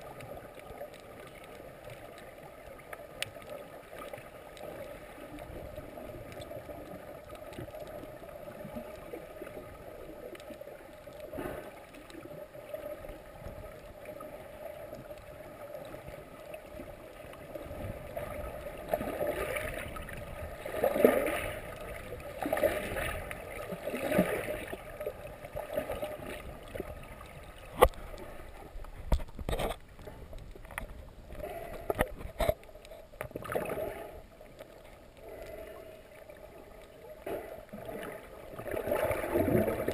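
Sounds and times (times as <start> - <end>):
low underwater hum: 0.0 - 39.9
water noise: 0.0 - 39.9.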